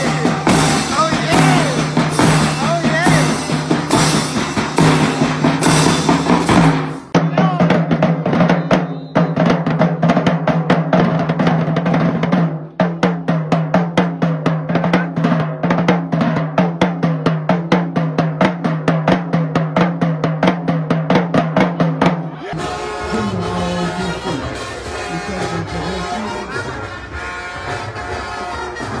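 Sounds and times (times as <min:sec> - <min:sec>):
band music with held notes: 0:00.0 - 0:10.7, 0:22.4 - 0:29.0
marching drumline cadence: 0:00.0 - 0:29.0.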